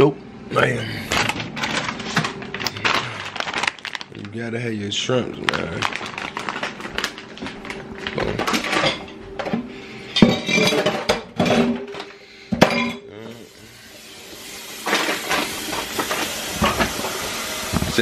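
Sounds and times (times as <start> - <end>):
kitchen knocks and clinks: 10.2 - 13.0.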